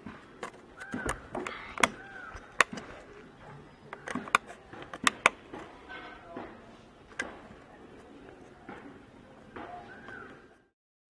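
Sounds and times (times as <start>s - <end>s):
shell clicking on plastic pipe: 0.4s - 7.7s.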